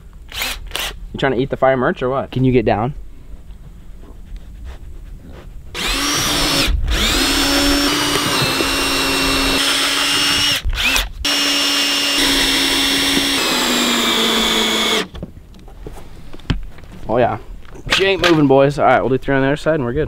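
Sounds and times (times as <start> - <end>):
cordless drill driving screws: 0.3 - 1.0, 5.8 - 15.2.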